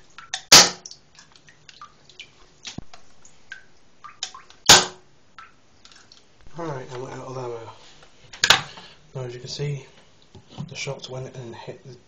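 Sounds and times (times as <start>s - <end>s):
water ticks and drips: 0.0s - 7.2s
airsoft pistol shot: 0.5s - 0.8s, 4.7s - 5.0s.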